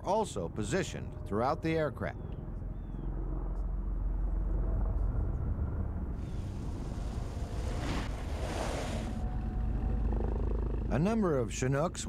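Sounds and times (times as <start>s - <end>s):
rushing noise with low rumble: 5.0s - 9.4s.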